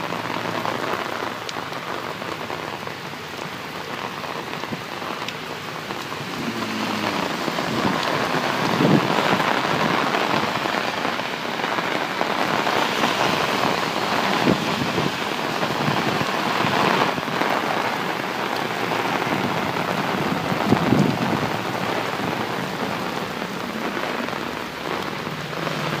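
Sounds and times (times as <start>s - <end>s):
heavy rain on an umbrella: 0.0s - 26.0s.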